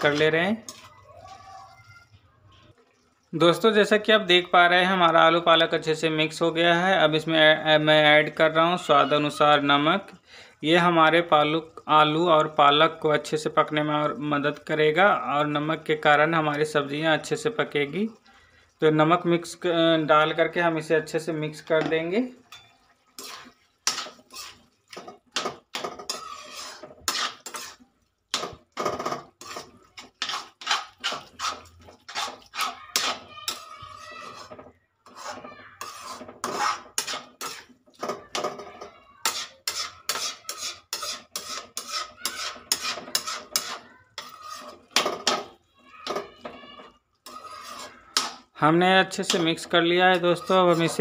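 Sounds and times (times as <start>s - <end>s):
metal spatula scraping metal pan: 0.0s - 1.0s, 21.7s - 51.0s.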